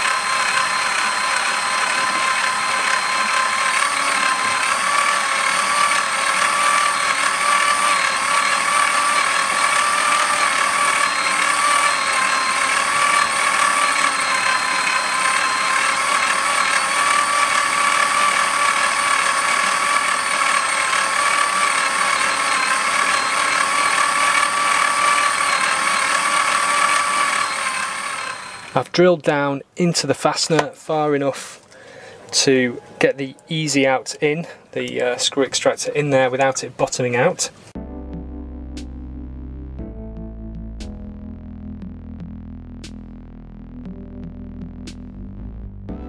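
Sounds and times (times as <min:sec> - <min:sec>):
power drill whining: 0:00.0 - 0:29.0.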